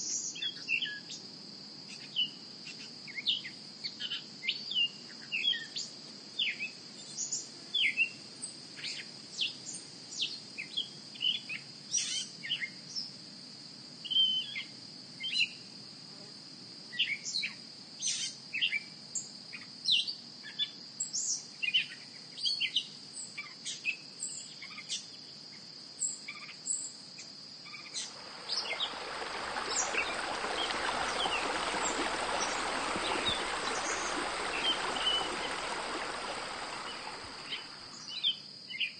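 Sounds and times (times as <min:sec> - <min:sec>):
high insect trill: 0:25.3 - 0:38.9
running water: 0:28.0 - 0:38.2
short bird chirps: 0:29.7 - 0:35.4, 0:36.8 - 0:38.4.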